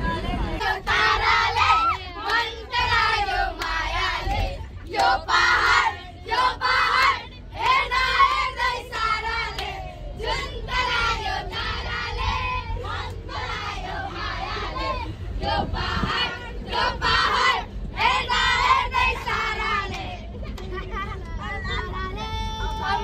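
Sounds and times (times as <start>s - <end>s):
children singing and shouting: 5.3s - 23.0s.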